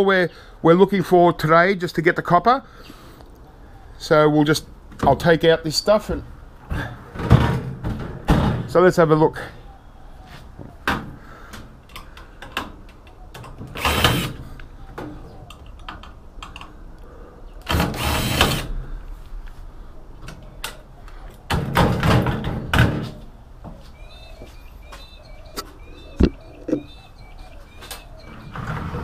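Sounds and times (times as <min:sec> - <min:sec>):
cordless drill whining: 0:13.8 - 0:14.4, 0:17.7 - 0:18.7.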